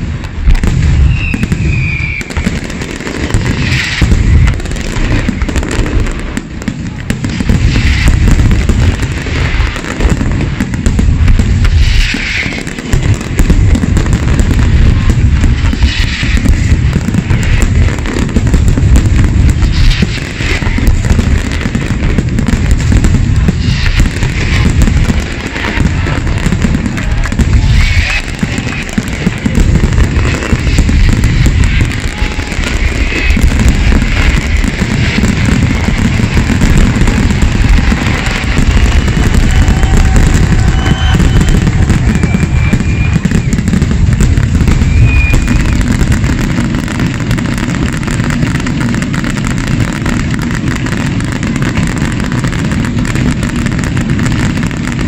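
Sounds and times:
firework shells bursting: 0.0s - 55.0s.

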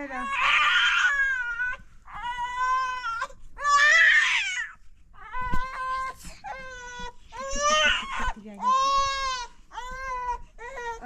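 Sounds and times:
young child crying: 5.4s - 9.2s.

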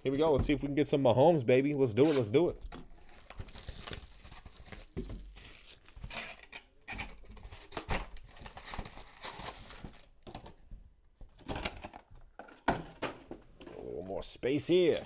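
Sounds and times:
card packs crinkling: 3.0s - 6.4s, 7.5s - 10.5s.

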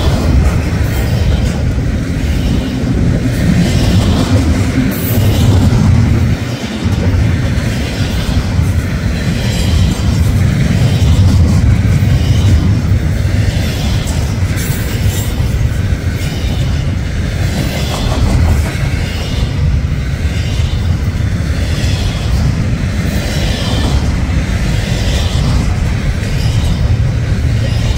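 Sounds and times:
freight train rumbling past: 0.0s - 27.9s.

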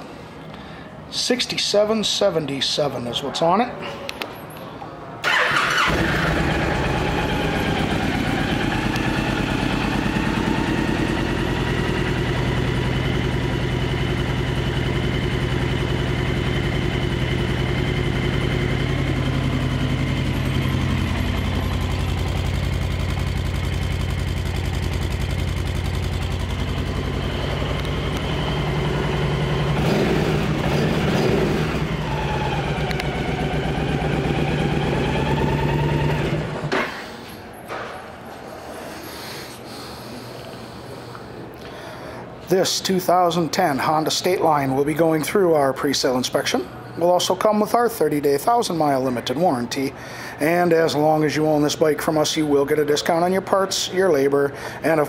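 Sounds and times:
motorcycle engine starting and idling: 5.2s - 38.2s.

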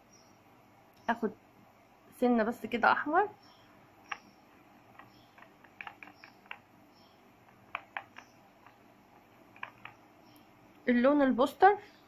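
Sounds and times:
paintbrush tapping in palette: 4.9s - 6.7s, 7.4s - 10.0s.

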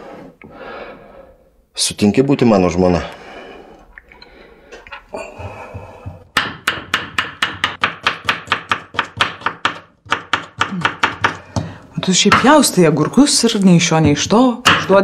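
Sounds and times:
knife chopping on wooden board: 5.6s - 12.6s.

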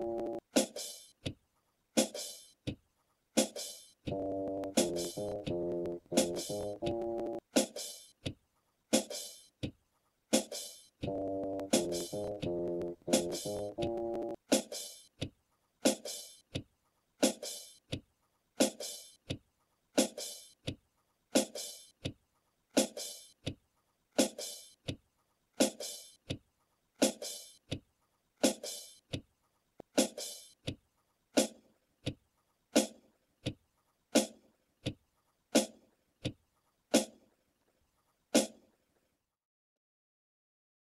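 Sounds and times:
clock ticking: 0.0s - 0.4s, 4.1s - 7.4s, 11.0s - 14.4s.

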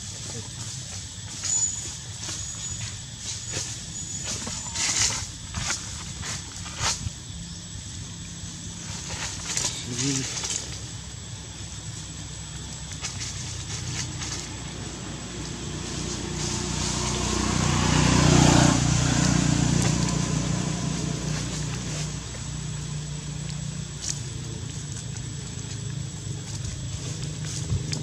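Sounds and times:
vehicle passing by: 13.7s - 24.2s.

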